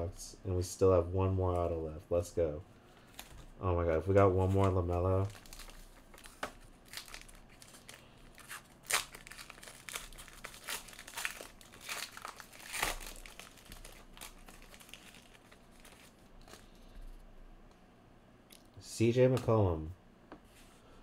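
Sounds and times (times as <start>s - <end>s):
foil wrapper tearing and crinkling: 4.5s - 16.8s.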